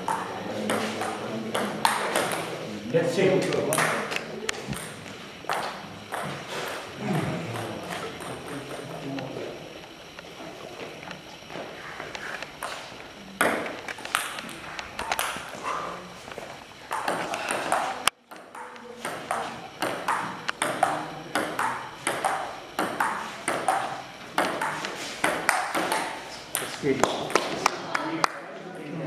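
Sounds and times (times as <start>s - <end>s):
table tennis ball clicks: 0.0s - 2.5s, 3.4s - 6.3s, 13.4s - 15.5s, 16.9s - 28.1s.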